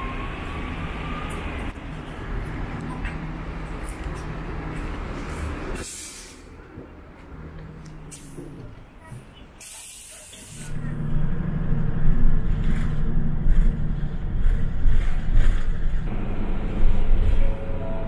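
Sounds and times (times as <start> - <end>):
heavy vehicle engine rumbling: 0.0 - 18.0
air hiss: 5.8 - 6.5, 9.6 - 10.8.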